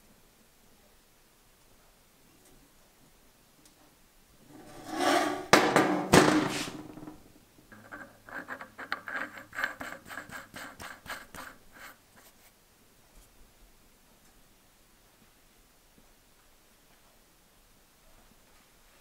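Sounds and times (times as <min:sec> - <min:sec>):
loud clatter with knocks: 0:04.5 - 0:07.2
lock nut scraping and clicking on bolt: 0:07.7 - 0:11.6.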